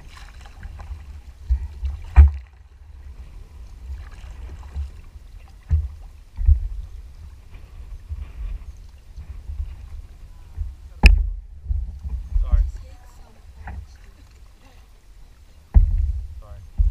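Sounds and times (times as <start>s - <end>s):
low rumble: 0.8s - 14.0s, 15.7s - 16.9s
paddle thumps: 1.4s - 2.5s, 5.6s - 6.9s, 15.7s - 16.9s.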